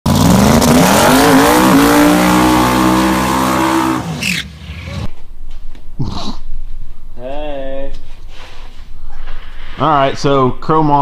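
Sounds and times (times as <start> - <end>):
car engine accelerating hard: 0.1 - 5.1.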